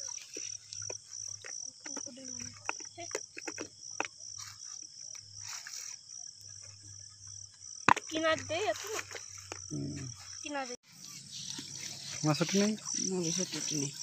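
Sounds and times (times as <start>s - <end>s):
cricket chirping: 0.0s - 14.0s.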